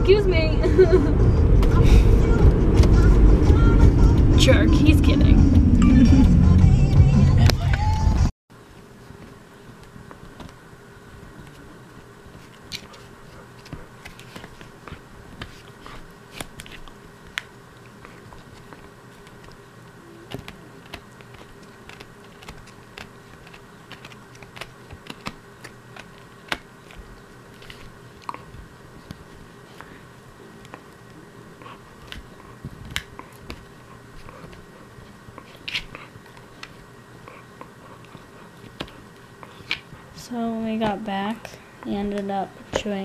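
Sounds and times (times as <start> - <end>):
steady low hum: 0.0 - 43.0
puppy gnawing a bone: 9.1 - 40.2.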